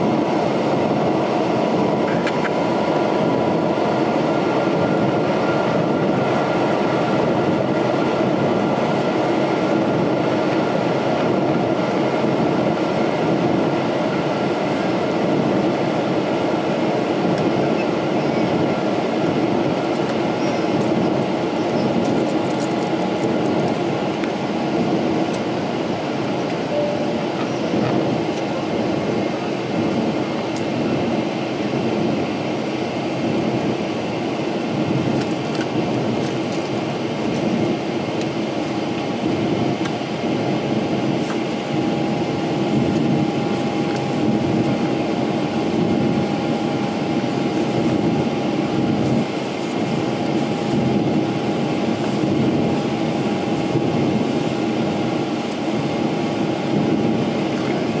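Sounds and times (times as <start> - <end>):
airliner engines rumbling: 0.0 - 58.0
faint steady tone: 26.7 - 27.8.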